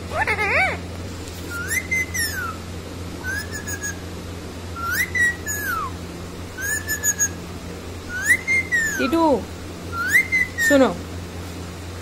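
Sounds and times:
parakeet whistling: 0.1 - 0.8, 1.5 - 2.6, 3.2 - 4.1, 4.8 - 6.0, 6.6 - 7.4, 8.1 - 9.3, 9.9 - 10.9.

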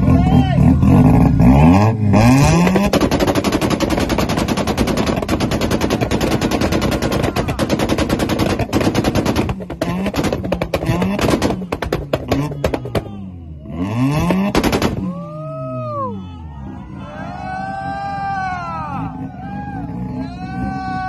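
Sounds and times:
engine revving: 0.0 - 16.1
exhaust pops and crackles: 2.4 - 13.2, 14.2 - 15.2.

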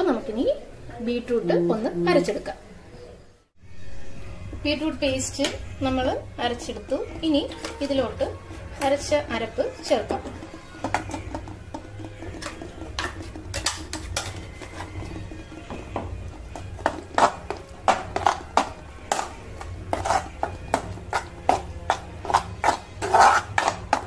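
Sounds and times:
metal spoon scraping a pan: 5.1 - 24.0.

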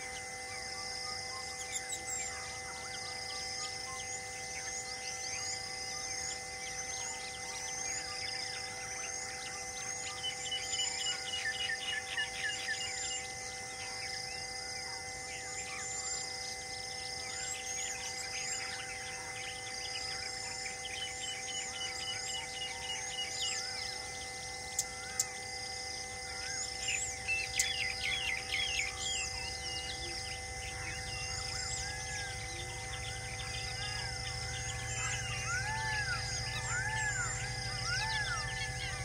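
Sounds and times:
steady sustained tones: 0.0 - 39.0
small birds chirping: 15.7 - 39.0.

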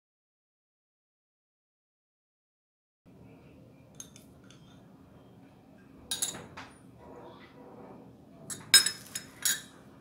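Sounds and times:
metal spoon clinking on glass: 6.1 - 6.5, 8.5 - 9.8.

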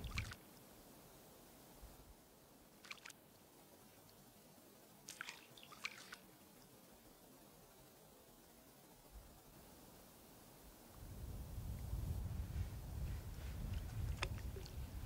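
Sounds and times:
small splashes on water: 0.0 - 0.4, 2.8 - 3.2, 5.0 - 6.3, 13.7 - 14.8.

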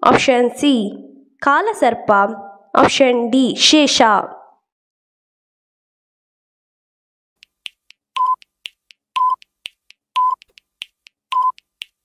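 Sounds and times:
clock-like ticks: 7.4 - 12.0
short beeps: 8.2 - 8.4, 9.2 - 9.4, 10.2 - 10.4, 11.3 - 11.6.

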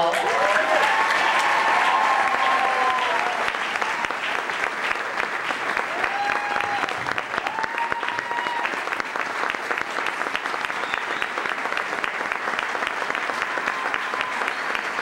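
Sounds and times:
large audience applauding: 0.0 - 15.0
high calls from crowd: 5.9 - 8.8.

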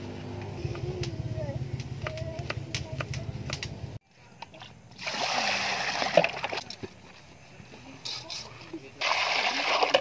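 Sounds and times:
water splashing into metal basin: 5.0 - 6.7, 9.0 - 10.0.

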